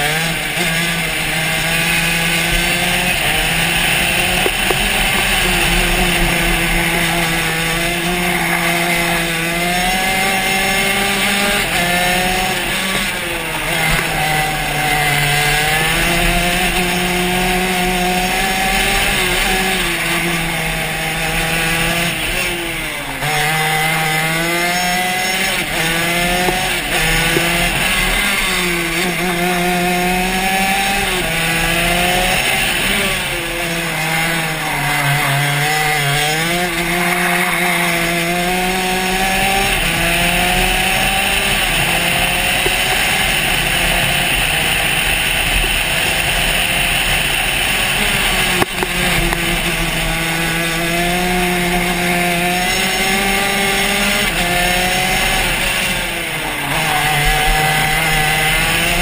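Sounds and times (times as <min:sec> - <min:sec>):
kart engine running hard: 0:00.0 - 0:59.0.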